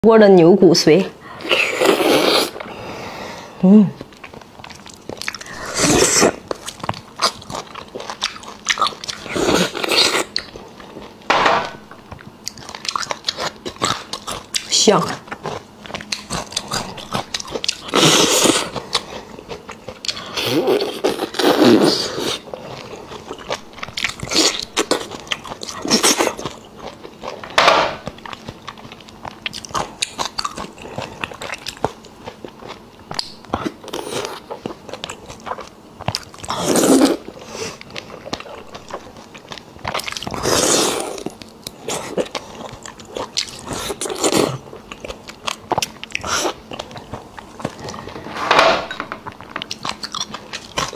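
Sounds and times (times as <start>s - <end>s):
chewing and mouth clicks: 4.0s - 11.3s, 12.0s - 48.2s, 49.2s - 50.9s
wet sucking and slurping: 5.4s - 6.4s.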